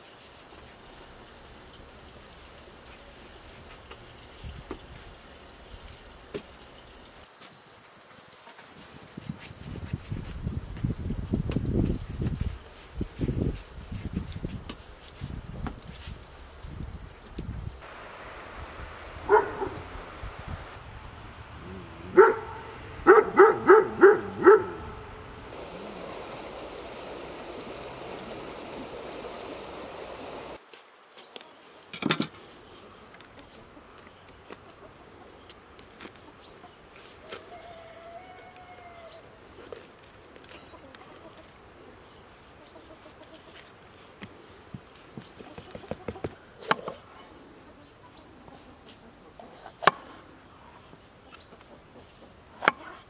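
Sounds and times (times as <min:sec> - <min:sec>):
dog barking: 0:19.3 - 0:19.8, 0:22.1 - 0:25.1.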